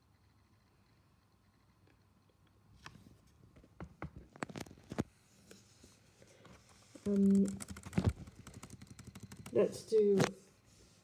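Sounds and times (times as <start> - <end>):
keyboard and mouse clicks: 6.6 - 10.3.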